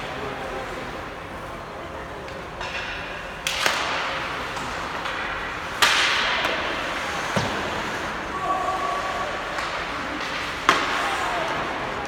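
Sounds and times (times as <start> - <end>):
hockey stick hitting puck: 2.6 - 8.0, 9.4 - 11.8.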